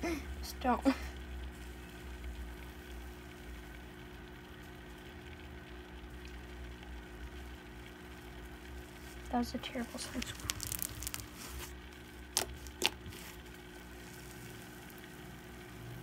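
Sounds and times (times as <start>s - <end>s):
faint low hum with hiss: 0.0s - 16.0s.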